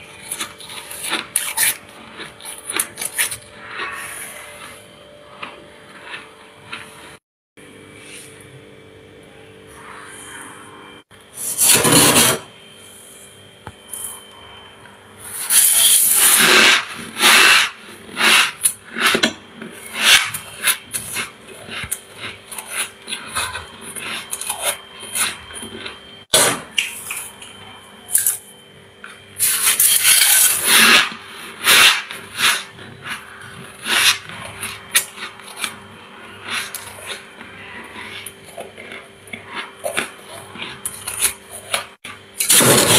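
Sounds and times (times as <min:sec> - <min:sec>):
metal utensil scraping frost: 0:11.4 - 0:12.5, 0:15.3 - 0:25.4, 0:29.4 - 0:38.3.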